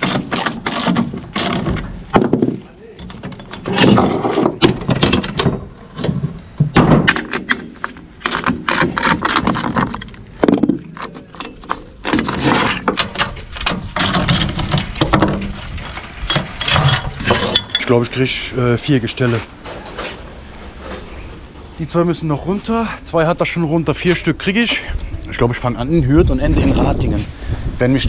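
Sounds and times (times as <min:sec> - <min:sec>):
metallic clinks and knocks: 0:09.6 - 0:11.9, 0:12.8 - 0:15.6, 0:16.3 - 0:17.9.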